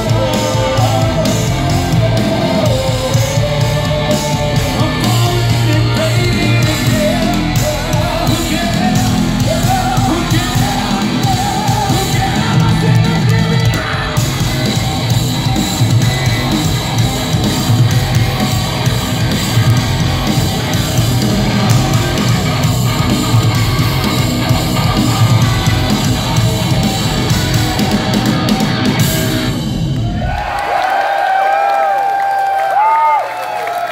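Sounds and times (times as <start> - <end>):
man singing: 0.0 - 14.4
heavy metal band playing: 0.0 - 30.5.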